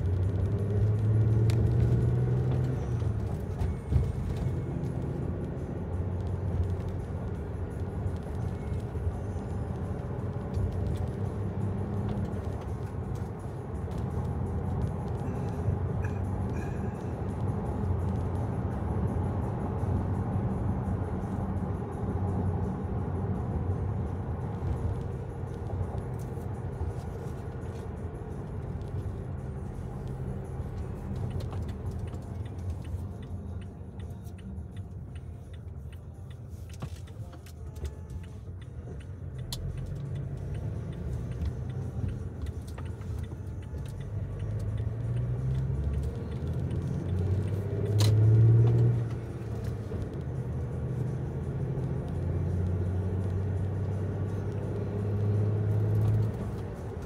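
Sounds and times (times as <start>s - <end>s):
vehicle rumbling on road: 0.0s - 57.0s.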